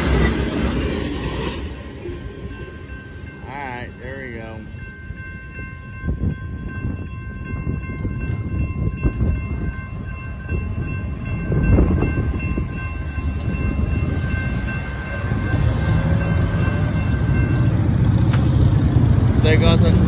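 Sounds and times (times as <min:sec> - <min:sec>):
crossing warning bell ringing: 0:00.0 - 0:18.4
low rumble: 0:00.0 - 0:20.0.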